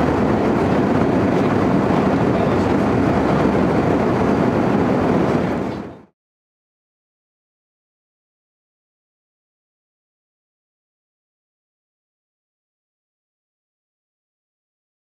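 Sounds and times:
airplane cabin engine and airflow noise: 0:00.0 - 0:06.1.

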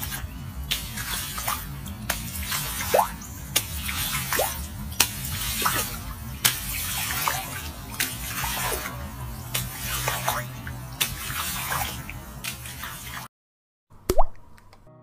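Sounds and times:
steady low hum: 0:00.0 - 0:13.2
feet splashing through water: 0:00.0 - 0:13.3
water drips and plops: 0:00.0 - 0:13.3, 0:14.1 - 0:14.4.

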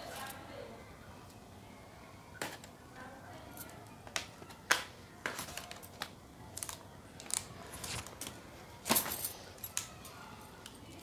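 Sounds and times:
plastic packaging crinkling: 0:04.1 - 0:08.4.

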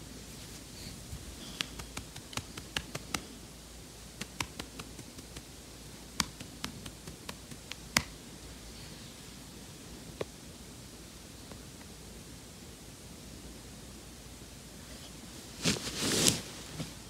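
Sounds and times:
faint rustling: 0:00.0 - 0:03.5, 0:14.9 - 0:17.0.

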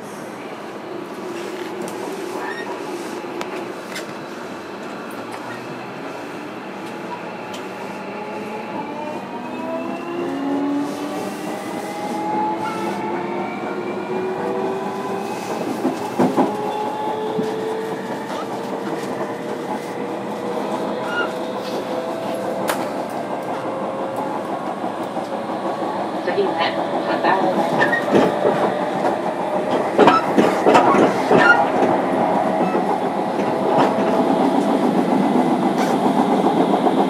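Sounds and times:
wheel-on-rail noise: 0:10.3 - 0:37.0.

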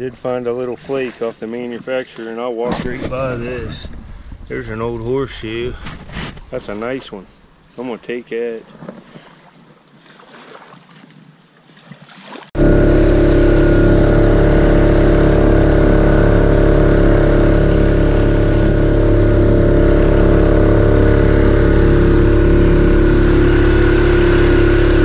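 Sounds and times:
jet kayak engine running: 0:00.0 - 0:08.1, 0:12.0 - 0:25.0
water rushing along a hull: 0:00.0 - 0:25.0
faint insect buzzing: 0:04.4 - 0:12.4.

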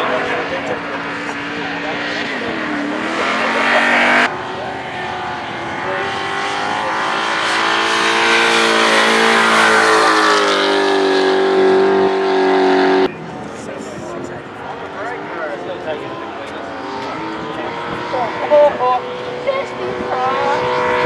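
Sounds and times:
car engine at high revs: 0:00.0 - 0:21.0.

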